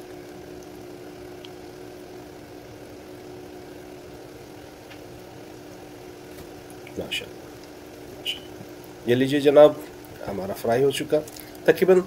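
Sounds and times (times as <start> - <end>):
patty sizzling in hot oil: 0.0 - 12.0.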